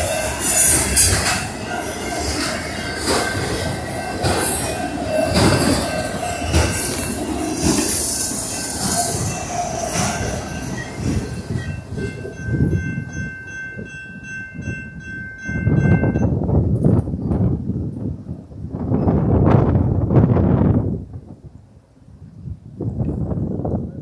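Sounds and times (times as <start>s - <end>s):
train wheel squeal: 0.0s - 16.4s
crossing warning bell ringing: 0.0s - 16.9s
wheels clicking over rail joints: 0.0s - 17.4s
freight train rolling past: 0.0s - 24.0s.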